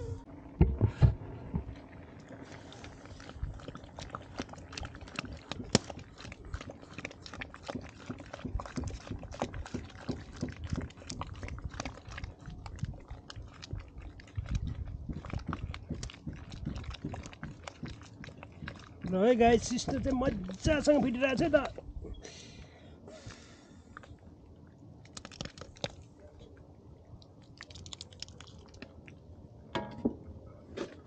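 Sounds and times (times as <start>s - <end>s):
ladle churning thick soup: 0.4s - 21.9s, 24.0s - 26.2s.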